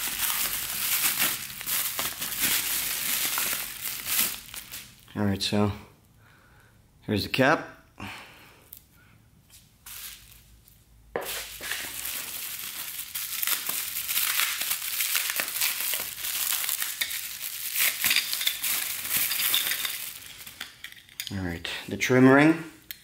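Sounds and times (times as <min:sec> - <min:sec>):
bubble wrap crinkling: 0:00.0 - 0:05.1, 0:09.6 - 0:21.2.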